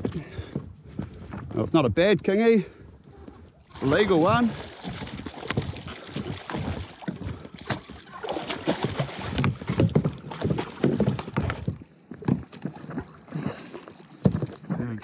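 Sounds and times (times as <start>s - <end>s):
water splashing against hull: 3.1s - 15.0s
fish thrashing in water: 3.4s - 14.8s
knocks and thuds on kayak: 4.0s - 13.6s, 14.2s - 15.0s.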